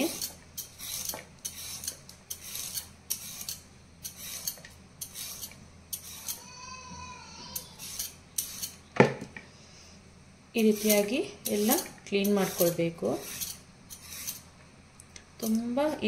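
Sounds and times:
peeler scraping carrots: 0:00.0 - 0:06.5, 0:07.5 - 0:08.8, 0:10.6 - 0:14.5.

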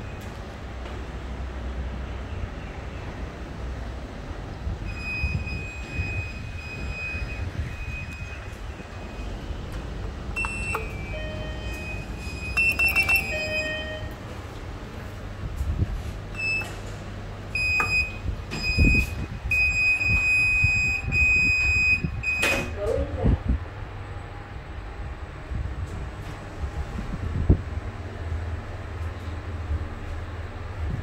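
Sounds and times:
steady low lift rumble: 0:00.0 - 0:31.0
high repeating beep: 0:04.9 - 0:09.3, 0:10.4 - 0:14.2
short electronic beeps: 0:04.9 - 0:09.4, 0:10.4 - 0:14.2, 0:17.6 - 0:22.7
button clicks: 0:10.4 - 0:11.9.

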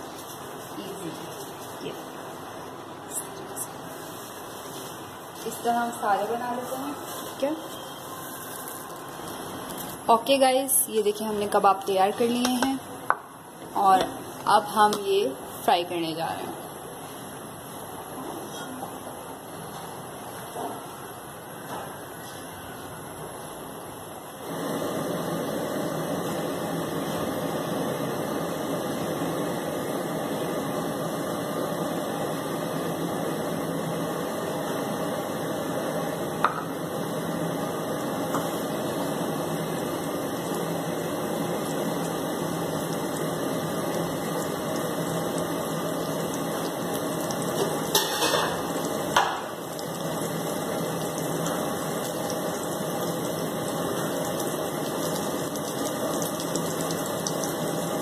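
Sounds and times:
oil sizzling in a frying pan: 0:03.8 - 0:18.1, 0:23.2 - 0:58.0.

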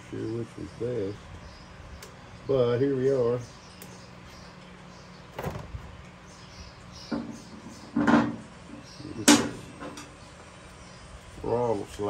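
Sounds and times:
tools knocking on workbench: 0:08.0 - 0:08.4.

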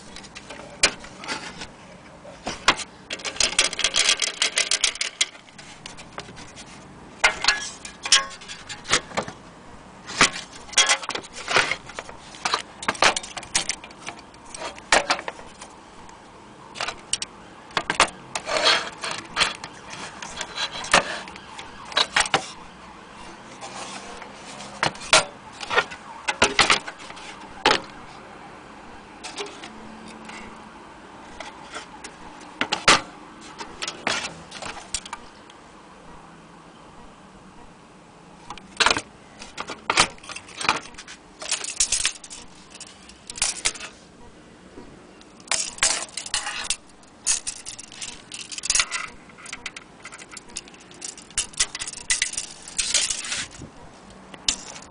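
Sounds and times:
metal parts clinking and rattling: 0:02.5 - 0:06.6, 0:07.2 - 0:09.4, 0:10.1 - 0:15.7, 0:16.7 - 0:22.6, 0:23.7 - 0:27.9, 0:29.2 - 0:30.6, 0:31.3 - 0:35.2, 0:38.6 - 0:44.0, 0:45.2 - 0:53.6, 0:54.3 - 0:54.9.

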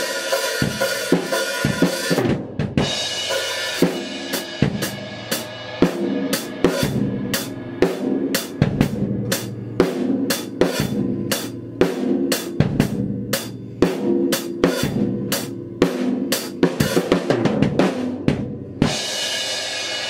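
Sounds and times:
drum kit played hard: 0:00.0 - 0:20.0.

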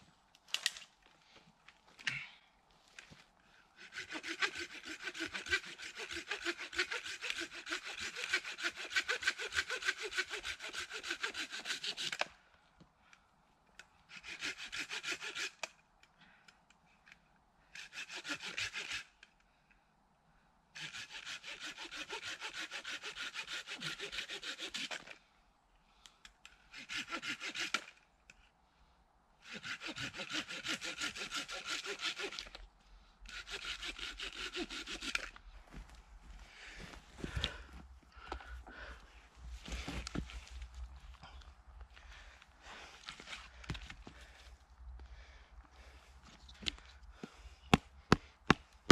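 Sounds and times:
hand saw cutting wood: 0:03.8 - 0:12.3, 0:14.1 - 0:15.8, 0:17.8 - 0:19.2, 0:20.8 - 0:25.2, 0:26.7 - 0:28.0, 0:29.4 - 0:32.6, 0:33.2 - 0:35.4.

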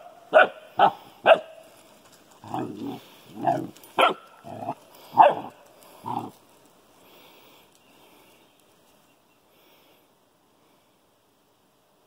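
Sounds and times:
dog play barking: 0:00.3 - 0:01.6, 0:02.4 - 0:06.3
dog growly grunts: 0:02.4 - 0:03.8, 0:04.4 - 0:04.8, 0:05.4 - 0:06.4.

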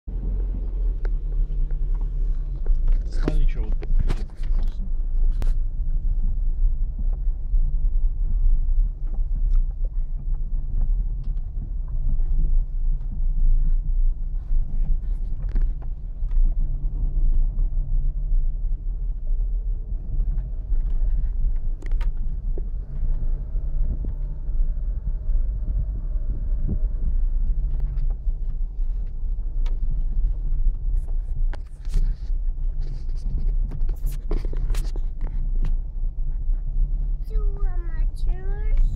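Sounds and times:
road rumble: 0:00.0 - 0:38.9
car engine drone: 0:00.1 - 0:38.9.

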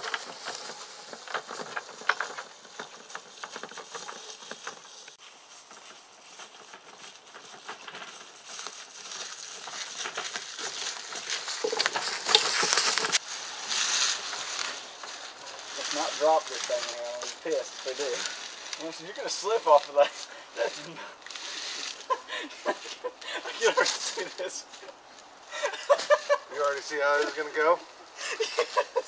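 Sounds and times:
footsteps on leaves: 0:00.0 - 0:27.8
wagon wheels crunching over leaves: 0:00.0 - 0:29.0.

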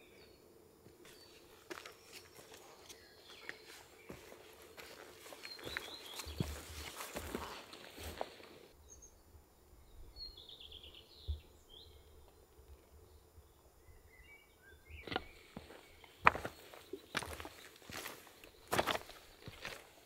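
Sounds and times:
faint birdsong chirps: 0:00.0 - 0:20.0
footsteps: 0:00.8 - 0:08.7, 0:15.1 - 0:19.9.

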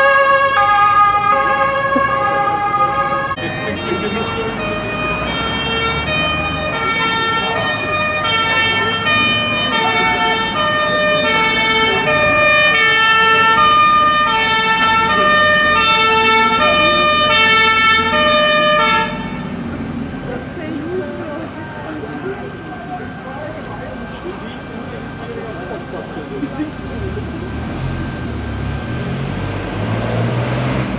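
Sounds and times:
two-tone fire engine siren: 0:00.0 - 0:19.8.

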